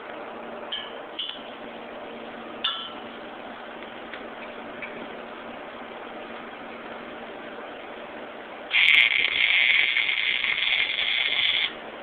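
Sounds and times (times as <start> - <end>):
steady hiss: 8.7 - 11.8.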